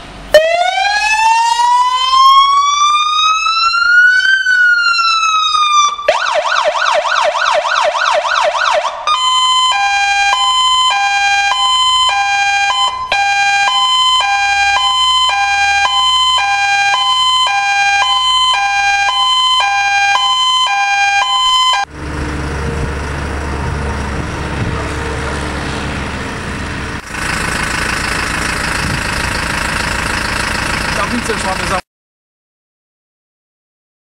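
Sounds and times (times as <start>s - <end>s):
two-tone fire engine siren: 0.3s - 31.8s
truck engine running: 8.4s - 31.8s.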